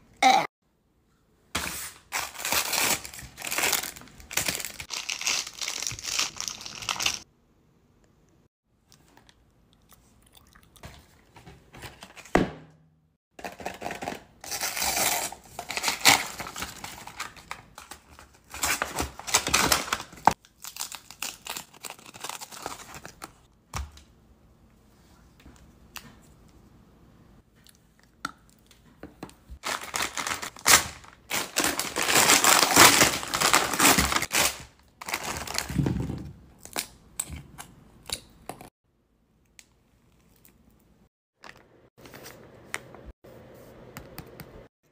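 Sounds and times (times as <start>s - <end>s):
candy wrappers crinkling and tearing: 2.1s - 7.2s, 13.5s - 23.4s, 29.6s - 35.8s.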